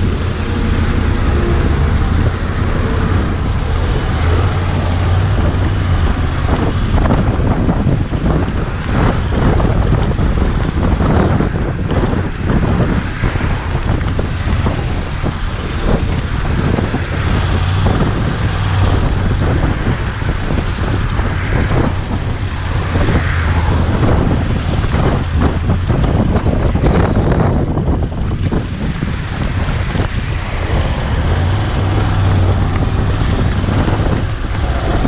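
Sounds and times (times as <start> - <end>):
motorcycle engine and road drone: 0.0 - 35.0
wind buffeting microphone: 0.0 - 35.0.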